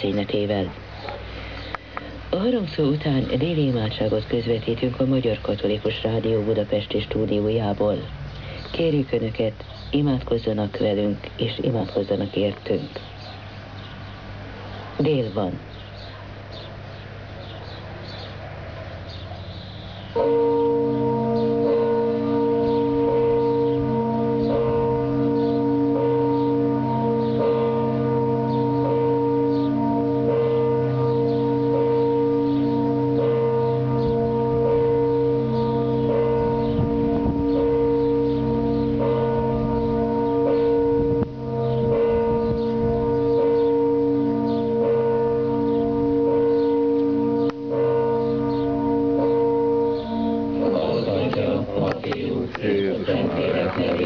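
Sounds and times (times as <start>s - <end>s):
church bells ringing over radio: 0.0s - 0.8s, 2.4s - 8.2s, 8.8s - 13.0s, 19.3s - 54.0s
steady radio hum: 50.6s - 54.0s.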